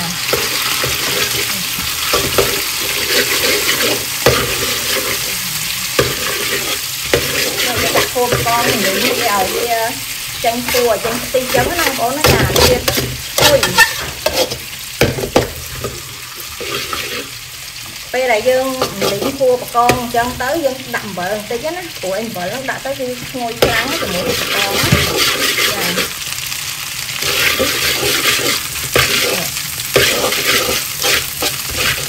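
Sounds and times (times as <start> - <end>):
garlic sizzling in hot oil: 0.0 - 32.0
metal ladle scraping a wok: 2.1 - 5.3, 5.9 - 9.7, 10.6 - 14.6, 15.8 - 17.4, 18.8 - 19.4, 23.7 - 26.2, 27.2 - 32.0.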